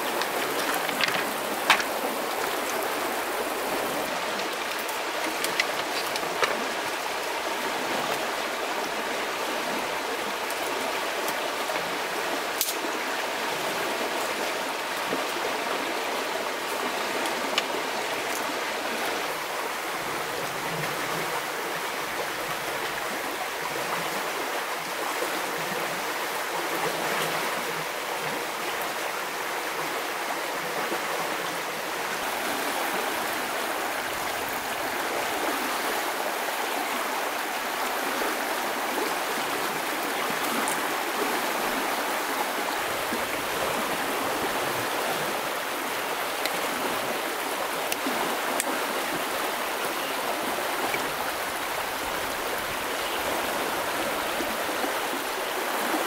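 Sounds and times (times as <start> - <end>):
stream running over stones: 0.0 - 56.0.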